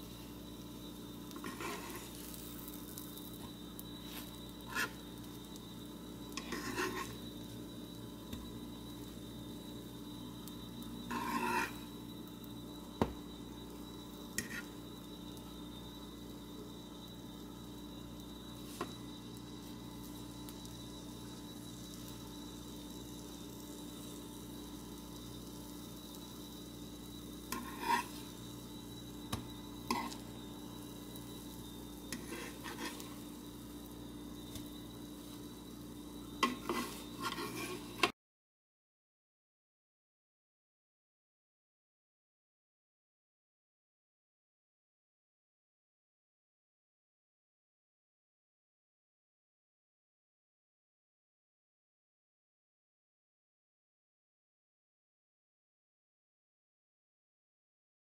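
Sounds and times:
bread sizzling in a pan: 0:00.0 - 0:38.2
metal fork scraping a pan: 0:01.4 - 0:02.5, 0:04.1 - 0:05.0, 0:06.3 - 0:07.2, 0:11.1 - 0:11.9, 0:14.4 - 0:14.8, 0:27.5 - 0:28.4, 0:29.8 - 0:30.3, 0:32.1 - 0:33.2, 0:36.4 - 0:38.1.

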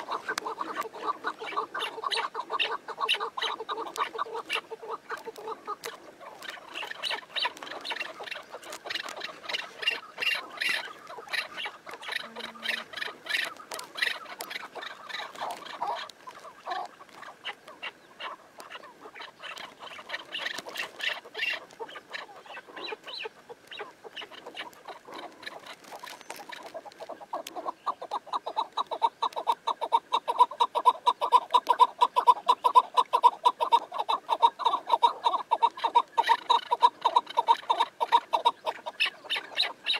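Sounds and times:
partridges cackling: 0:00.0 - 0:39.9.

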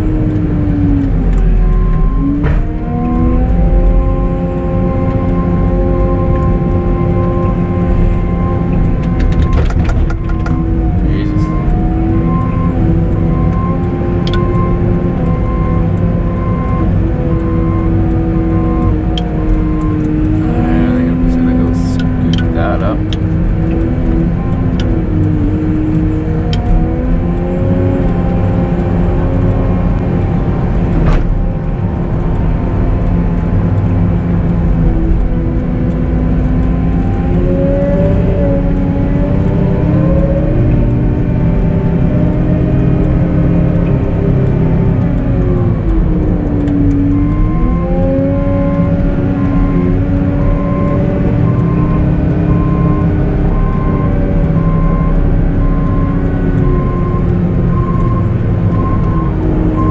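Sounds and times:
loader diesel engine revving: 0:00.0 - 0:59.9
backup alarm beeping: 0:07.1 - 0:23.0, 0:47.0 - 0:59.9.

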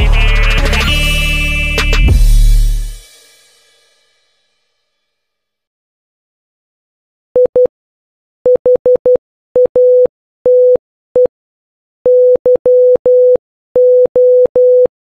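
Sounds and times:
morse code beeps: 0:08.5 - 0:11.3, 0:12.1 - 0:14.9.

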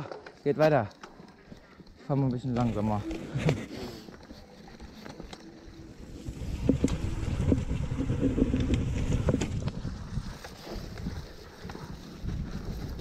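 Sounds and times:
tyres rolling over dirt and leaves: 0:00.0 - 0:13.0
bike rattling over bumps: 0:02.2 - 0:13.0
wind on microphone: 0:05.7 - 0:13.0.

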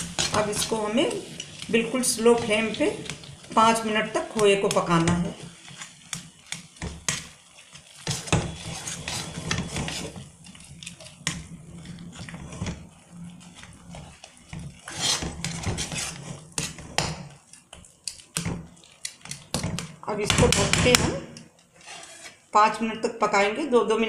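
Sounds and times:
metal spatula scraping a pan: 0:00.0 - 0:17.3, 0:21.8 - 0:22.5.

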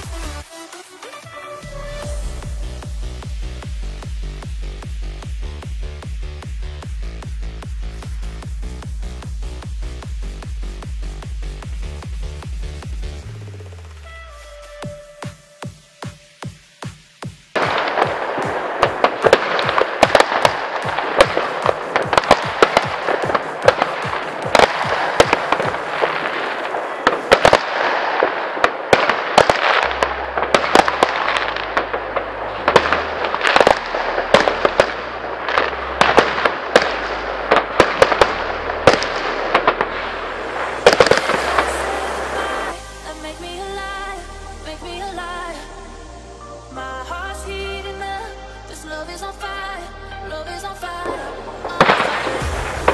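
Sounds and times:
electronic bass line: 0:00.0 - 0:15.4, 0:28.9 - 0:52.9
fireworks bangs: 0:14.6 - 0:43.3, 0:51.1 - 0:52.9.

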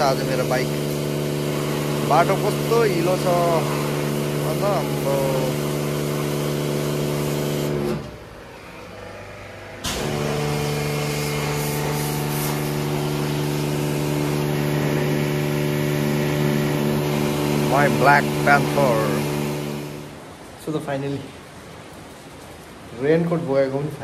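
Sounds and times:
water spray hissing: 0:00.0 - 0:08.2, 0:09.8 - 0:20.3
pressure washer motor hum: 0:00.0 - 0:20.6.

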